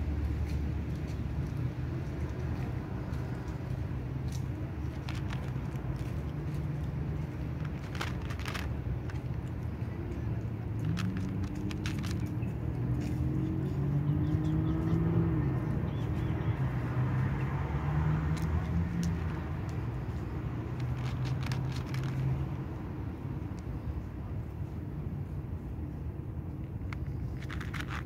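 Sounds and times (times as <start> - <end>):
road traffic drone: 0.0 - 28.0
cat crunching dry kibble: 4.4 - 12.4, 18.4 - 22.4, 26.7 - 28.0.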